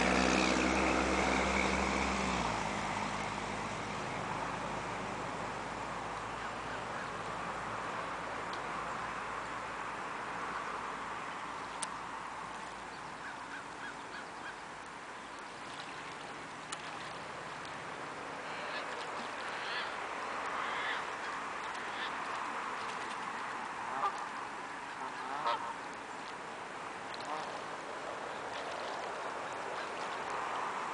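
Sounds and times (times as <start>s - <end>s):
steady background hiss: 0.0s - 30.9s
geese honking: 18.4s - 22.4s, 23.9s - 25.8s, 27.1s - 27.6s.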